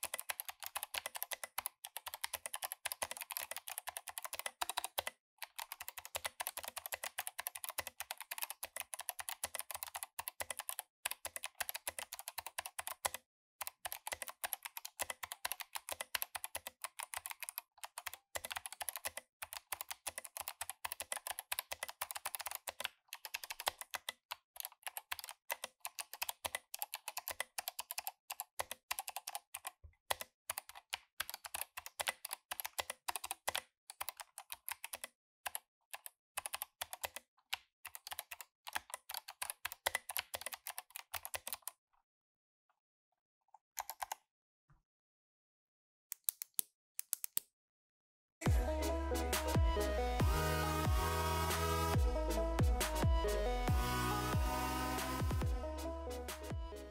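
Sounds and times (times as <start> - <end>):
fast mechanical keyboard typing: 0.0 - 37.3, 37.9 - 41.7, 43.8 - 44.2, 56.2 - 56.9.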